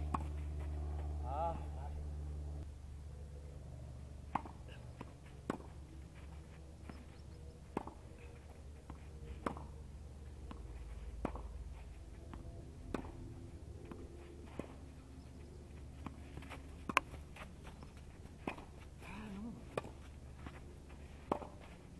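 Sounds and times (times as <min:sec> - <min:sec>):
tennis balls struck by rackets: 0:00.0 - 0:01.2, 0:04.2 - 0:05.8, 0:06.8 - 0:11.7, 0:12.3 - 0:14.8, 0:15.4 - 0:19.0, 0:19.6 - 0:21.8.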